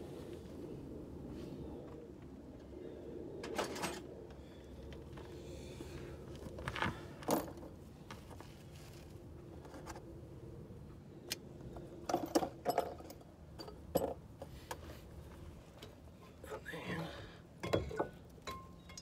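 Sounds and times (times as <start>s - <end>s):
hand tools clinking: 17.6s - 19.0s.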